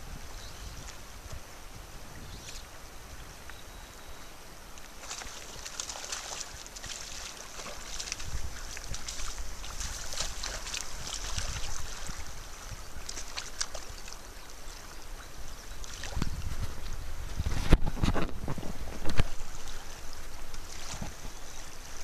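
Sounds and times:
wind buffeting microphone: 0:00.0 - 0:03.4, 0:07.9 - 0:13.2, 0:15.5 - 0:21.4
river water rushing: 0:02.7 - 0:16.2
fish splashing at the surface: 0:05.0 - 0:14.2.

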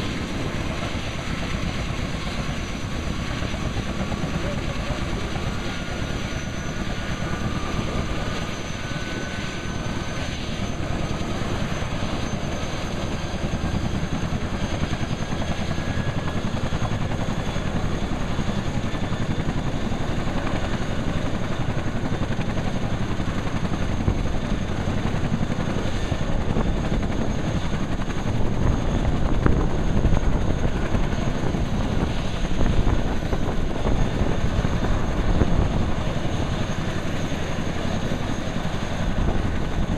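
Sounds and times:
helicopter rotor beat: 0:00.0 - 0:39.9
turbine whine: 0:00.0 - 0:39.9.

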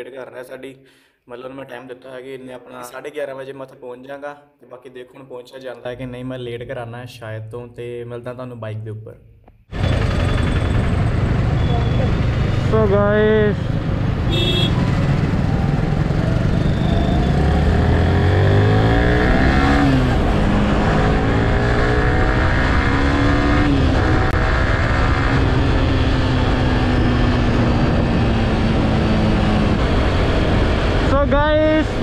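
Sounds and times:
motorcycle accelerating: 0:09.8 - 0:32.0.

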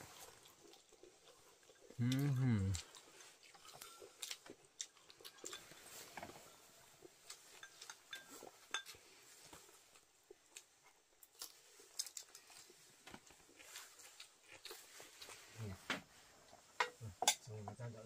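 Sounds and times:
utensils clinking on dishes: 0:07.5 - 0:09.0.

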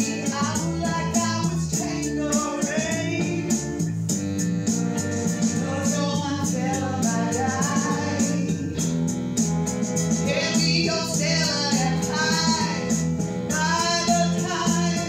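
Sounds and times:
woman singing into a microphone: 0:00.0 - 0:03.8, 0:05.6 - 0:08.8, 0:10.3 - 0:15.0
recorded band with steady beat: 0:00.0 - 0:15.0.

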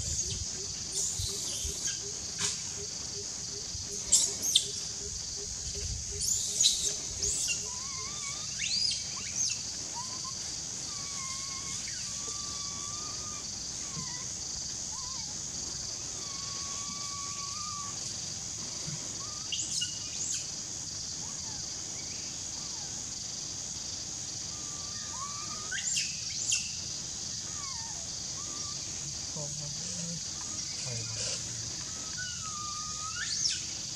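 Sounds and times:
insects droning: 0:00.0 - 0:33.9
whistled bird calls: 0:32.0 - 0:33.7.

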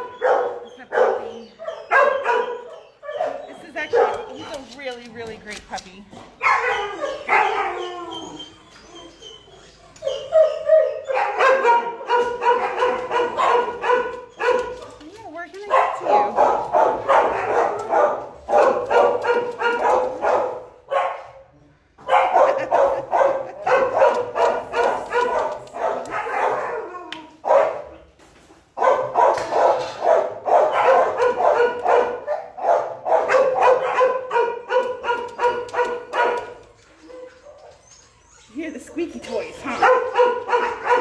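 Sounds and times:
dogs barking: 0:00.0 - 0:04.8, 0:06.4 - 0:21.4, 0:22.0 - 0:28.1, 0:28.7 - 0:37.9, 0:39.3 - 0:41.0.

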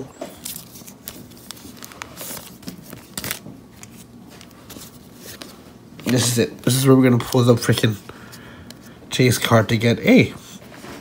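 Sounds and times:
cards clicking: 0:00.4 - 0:06.3
card pack wrapper crinkling: 0:00.4 - 0:07.9.

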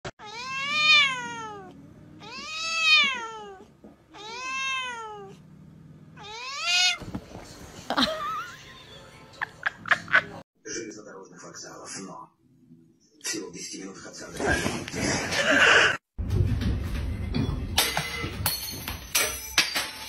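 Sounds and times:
cat meowing: 0:00.2 - 0:05.4, 0:06.2 - 0:07.0.

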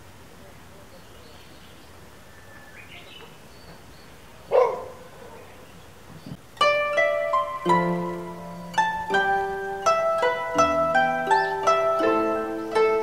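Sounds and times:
koto music with plucked notes: 0:06.4 - 0:13.0.

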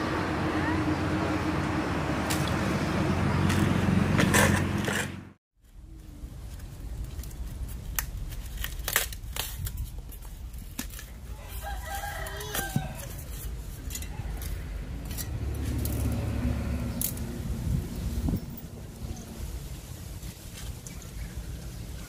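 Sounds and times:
rooster crowing: 0:11.3 - 0:13.2.

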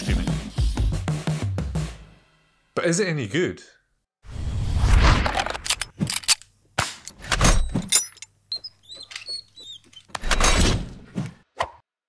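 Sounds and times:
thumbscrew being turned: 0:08.5 - 0:10.1.

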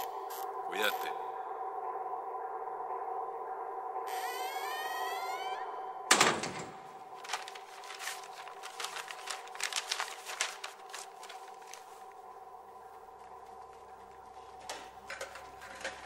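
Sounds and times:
faint steady hum: 0:00.0 - 0:16.0
paper and plastic crinkling: 0:07.2 - 0:12.2, 0:13.2 - 0:16.0.

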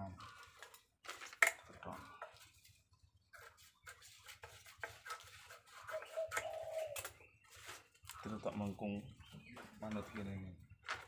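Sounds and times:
paper crinkling: 0:00.2 - 0:08.7.

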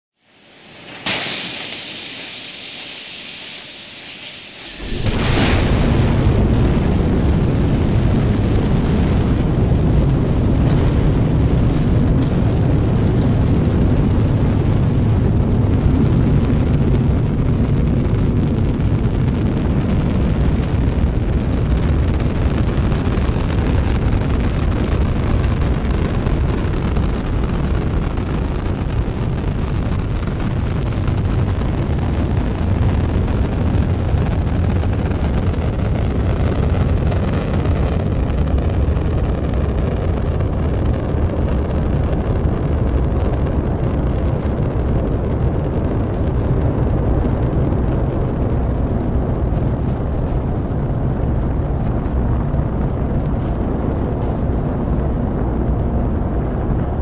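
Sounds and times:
hiss: 0:00.2 - 0:06.0
rocket engine roar: 0:00.2 - 0:57.0.

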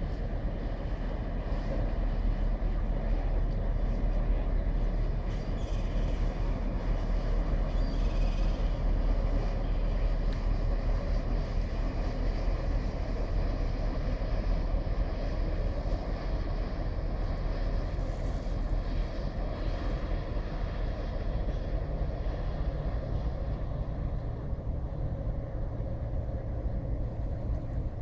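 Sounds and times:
low rumble of ferry: 0:00.0 - 0:28.0.

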